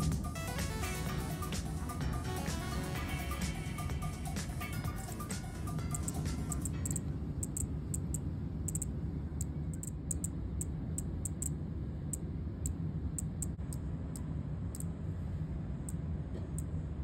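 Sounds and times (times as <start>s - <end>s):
low background rumble: 0.0s - 17.0s
cicada clicking chirps: 6.0s - 13.8s.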